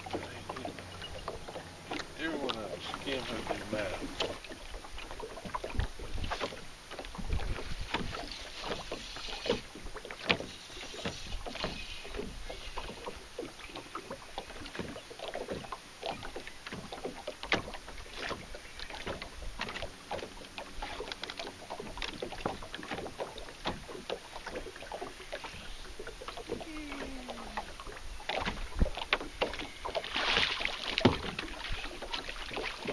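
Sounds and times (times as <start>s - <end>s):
waves slapping against boat hull: 0.0s - 32.9s
wind rumbling on microphone: 2.9s - 8.9s, 26.5s - 29.8s.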